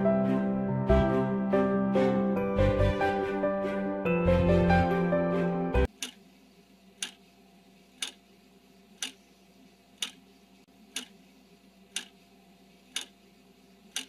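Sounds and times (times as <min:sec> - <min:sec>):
clock ticking: 0:05.9 - 0:06.2, 0:07.0 - 0:07.2, 0:08.0 - 0:08.2, 0:09.0 - 0:09.2, 0:10.0 - 0:10.2, 0:10.9 - 0:11.2, 0:11.9 - 0:12.2, 0:12.9 - 0:13.2.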